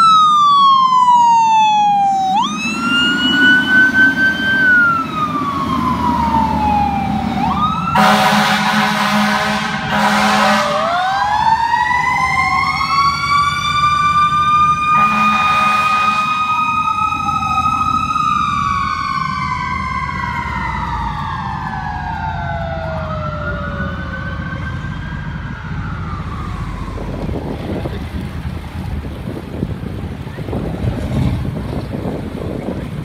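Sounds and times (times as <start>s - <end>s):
two-tone sirens wailing: 0.0s - 30.6s
truck horn blast: 8.0s - 10.9s, 14.9s - 16.4s.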